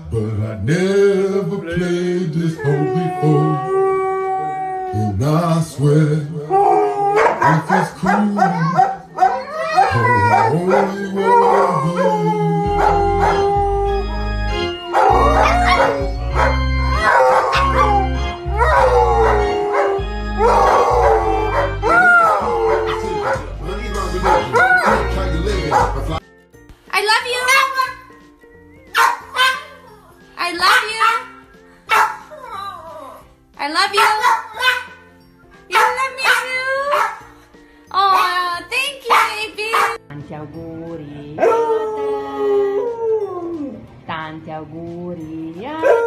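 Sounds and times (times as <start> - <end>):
dog howling: 2.6 - 5.2, 6.4 - 25.2, 41.4 - 43.8.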